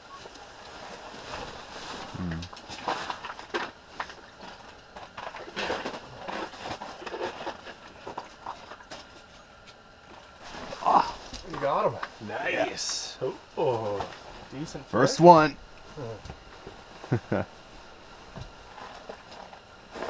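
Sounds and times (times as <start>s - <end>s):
low grunt-like sound: 2.1s - 2.5s, 10.8s - 11.2s.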